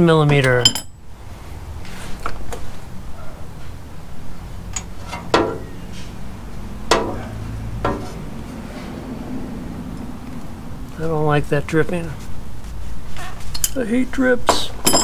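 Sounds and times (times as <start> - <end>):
wrench clinking on bolt: 0.3 - 0.9.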